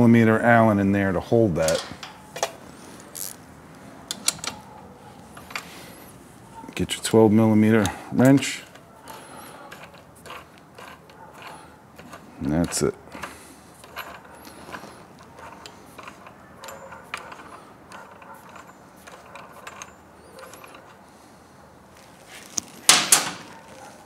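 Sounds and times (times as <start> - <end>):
ratcheting wrench clicking: 1.6 - 3.4, 4.1 - 4.6, 7.8 - 21.0
metallic clatter: 9.7 - 21.0.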